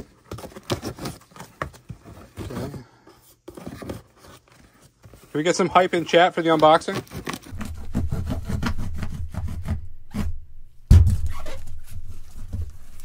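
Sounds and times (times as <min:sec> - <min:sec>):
cardboard box rustling: 0:00.0 - 0:08.7
knife sawing through tape and cardboard: 0:06.9 - 0:10.4
loud thump: 0:07.5 - 0:11.8.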